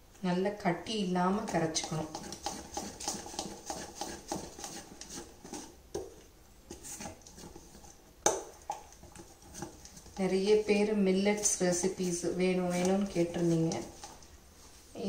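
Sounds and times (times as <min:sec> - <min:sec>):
metal spoon scraping a pot: 0:01.5 - 0:05.7.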